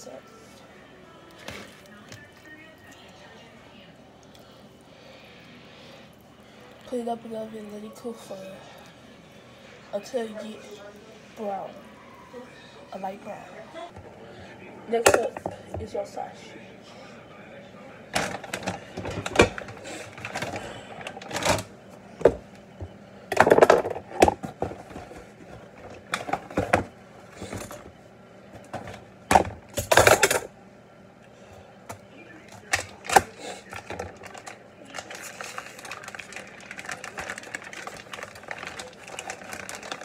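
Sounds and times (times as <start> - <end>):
plastic packaging crinkling: 18.2 - 21.7, 32.6 - 40.0.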